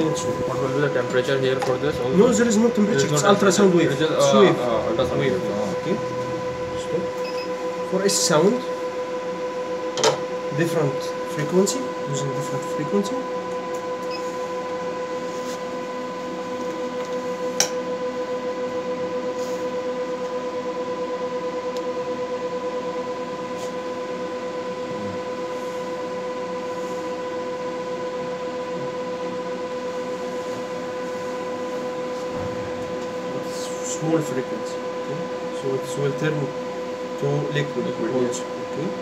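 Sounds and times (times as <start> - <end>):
steady buzzing tone: 0.0 - 39.0.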